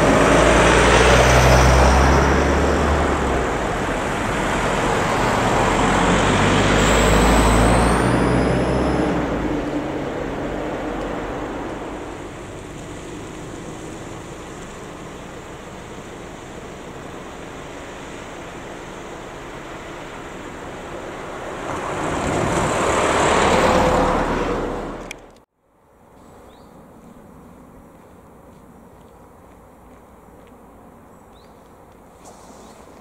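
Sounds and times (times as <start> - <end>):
car passing: 0.0 - 25.4
traffic noise: 0.0 - 33.0.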